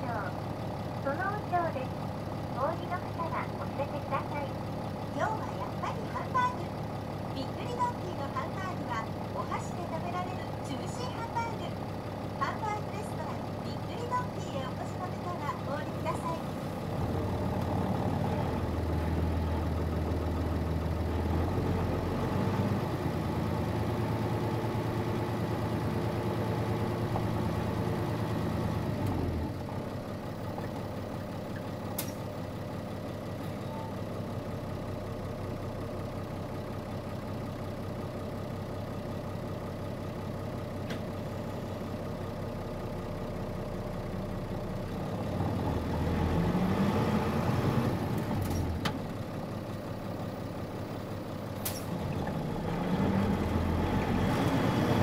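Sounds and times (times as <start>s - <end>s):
bus diesel engine running: 0.0s - 55.0s
single click: 32.0s - 32.3s.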